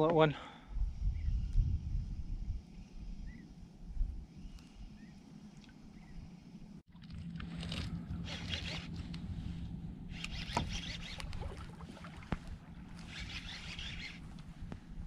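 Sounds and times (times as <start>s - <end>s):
low hum: 0.8s - 15.0s
fishing reel winding: 10.1s - 11.4s, 13.0s - 14.2s.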